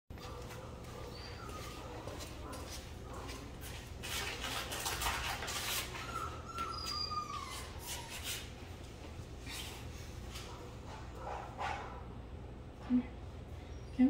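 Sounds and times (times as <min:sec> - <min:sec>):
footsteps on tile floor: 0:00.1 - 0:10.6
puppy whining: 0:00.2 - 0:02.6, 0:04.1 - 0:08.8.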